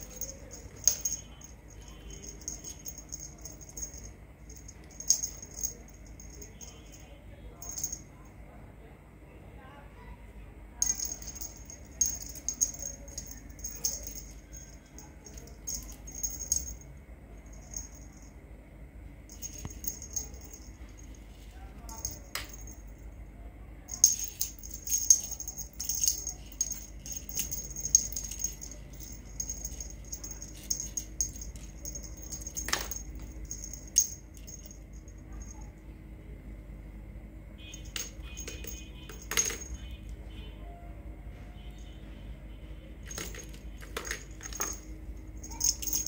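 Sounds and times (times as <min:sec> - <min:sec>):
bell in toy ball jingling: 0:00.0 - 0:07.0, 0:07.6 - 0:08.1, 0:10.8 - 0:18.3, 0:19.3 - 0:21.2, 0:21.9 - 0:22.9, 0:23.9 - 0:35.7, 0:37.7 - 0:39.9, 0:43.1 - 0:46.0.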